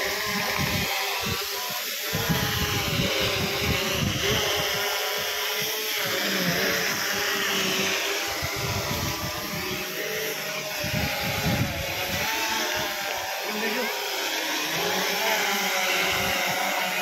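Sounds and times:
motor whirring: 0:00.0 - 0:17.0.

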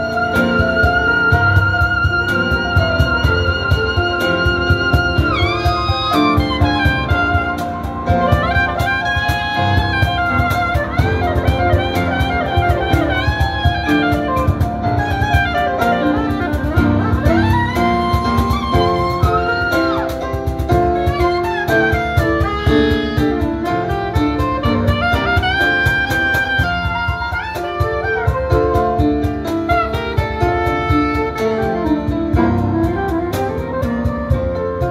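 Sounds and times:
cajon beating steadily: 0:00.0 - 0:34.9
grand piano chords: 0:00.0 - 0:34.9
soprano saxophone melody: 0:00.0 - 0:34.9.

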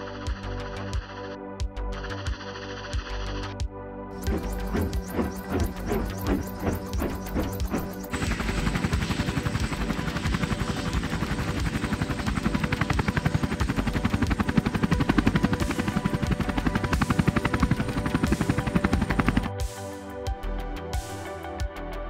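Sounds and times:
helicopter rotor thudding: 0:04.2 - 0:19.5
helicopter engine whine: 0:04.2 - 0:19.7.

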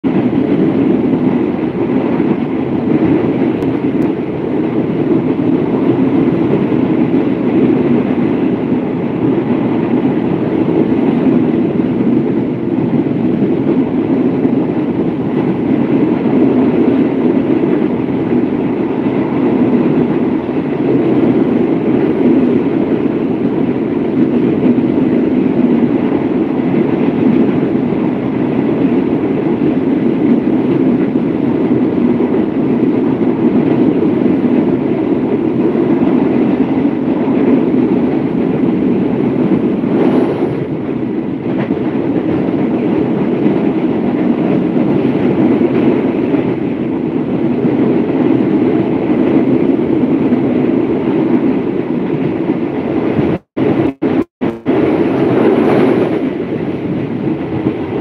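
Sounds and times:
train wheels rumbling on rails: 0:00.0 - 0:58.0
rushing air: 0:33.9 - 0:43.9, 0:44.5 - 0:58.0.

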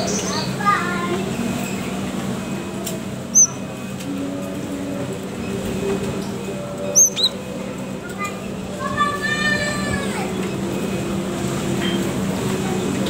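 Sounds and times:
bird chirping: 0:03.3 - 0:03.6, 0:06.8 - 0:07.4.

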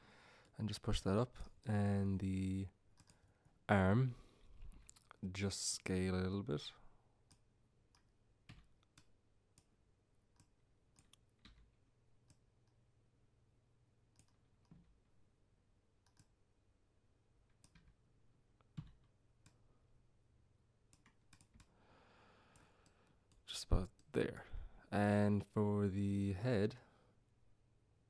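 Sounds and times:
computer mouse clicks: 0:03.0 - 0:03.2, 0:07.3 - 0:09.7, 0:14.1 - 0:14.9, 0:16.0 - 0:16.4, 0:20.9 - 0:21.7.

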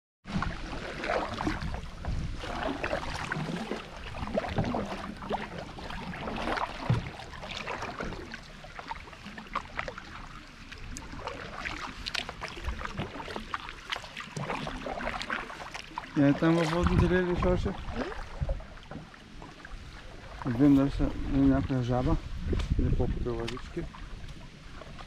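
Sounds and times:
paddle splashing in water: 0:00.2 - 0:25.0
water dripping from paddle: 0:02.4 - 0:17.0.

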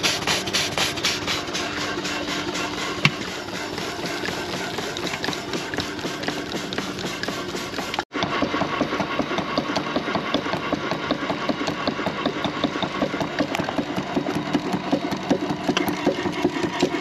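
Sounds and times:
steam engine clattering: 0:00.0 - 0:17.0.

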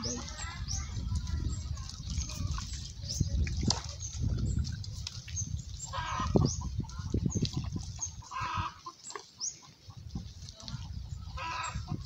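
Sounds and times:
farm animal calls: 0:05.8 - 0:12.0.

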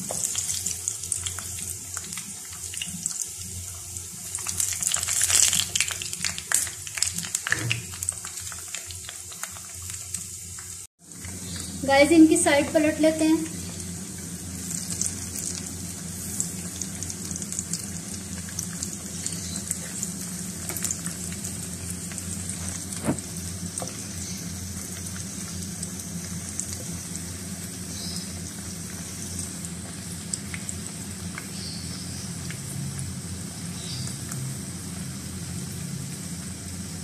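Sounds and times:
deep-frying sizzling and crackling: 0:00.0 - 0:37.0
low steady hum: 0:11.1 - 0:37.0.

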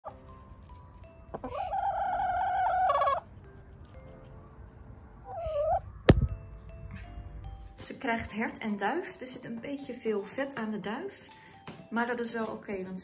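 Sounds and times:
hen calling: 0:01.3 - 0:03.3, 0:05.2 - 0:05.8.

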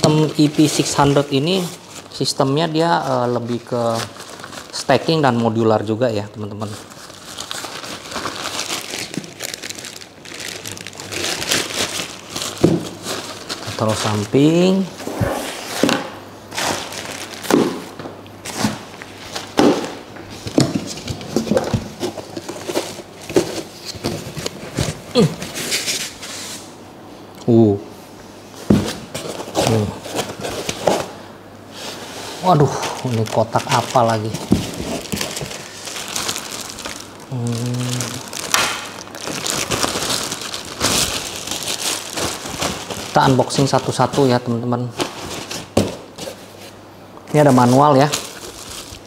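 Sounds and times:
plastic packaging crinkling: 0:00.0 - 0:15.0, 0:15.8 - 0:26.5, 0:28.9 - 0:31.1, 0:32.4 - 0:49.0
bags being set down: 0:12.5 - 0:13.1, 0:15.1 - 0:22.5
cardboard boxes being handled: 0:16.6 - 0:26.1, 0:28.6 - 0:31.1, 0:32.6 - 0:37.0
man humming: 0:25.1 - 0:25.5, 0:37.3 - 0:38.3.

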